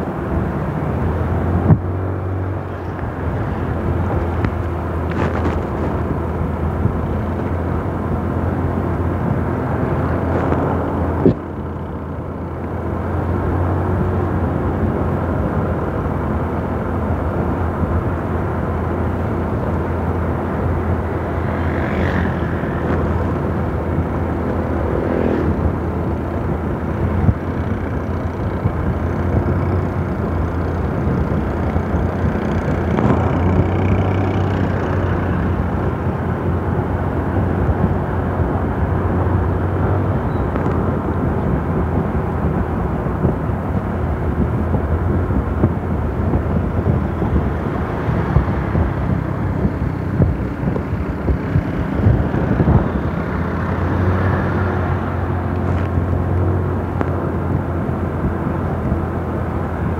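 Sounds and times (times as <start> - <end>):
low engine drone: 0.0 - 59.9
road noise: 0.0 - 59.9
wind rush: 0.0 - 59.9.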